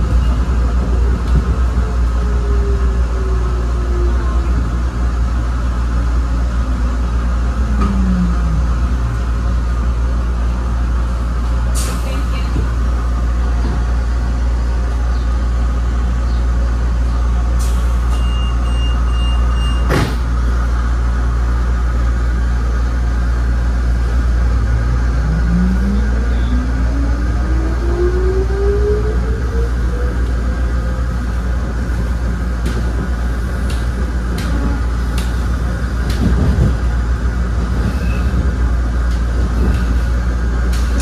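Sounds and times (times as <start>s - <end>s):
tram traction motors whining: 12.3s - 41.0s.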